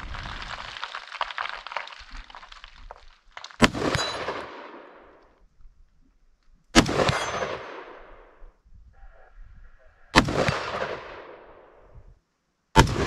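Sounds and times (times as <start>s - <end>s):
gunshots with echo: 6.8s - 8.3s, 10.2s - 11.6s, 12.8s - 13.0s
metallic ring of steel target: 7.1s - 7.7s.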